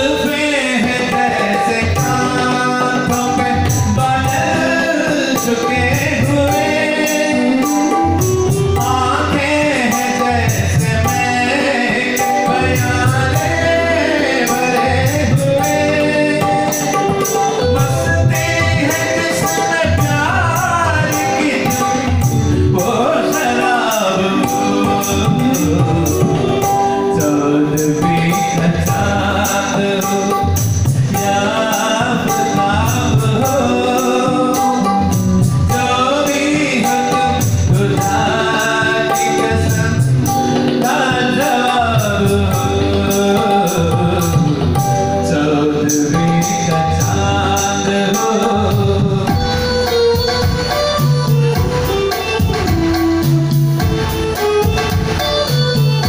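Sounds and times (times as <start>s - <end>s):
backing music with steady beat: 0.0s - 56.0s
man singing into a microphone: 0.0s - 56.0s.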